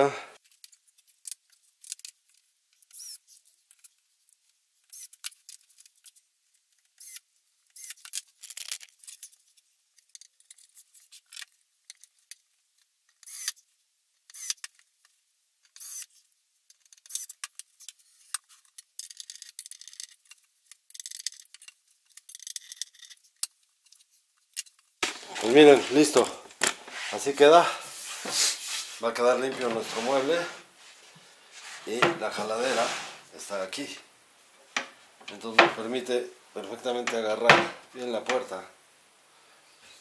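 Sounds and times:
cabinet door clicks and scrapes: 31.9 - 33.2.

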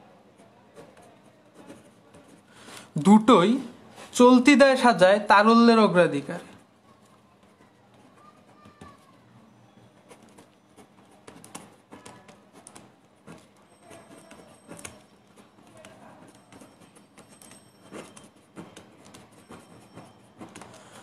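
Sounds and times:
pen scratching on paper: 0.7 - 2.5, 9.8 - 21.0.

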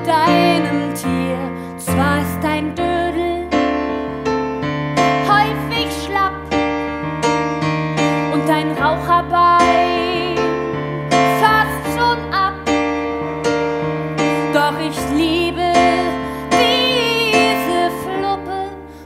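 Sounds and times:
woman singing: 0.0 - 4.0, 5.1 - 6.7, 8.1 - 12.8, 14.2 - 19.0
piano playing: 0.0 - 19.0.

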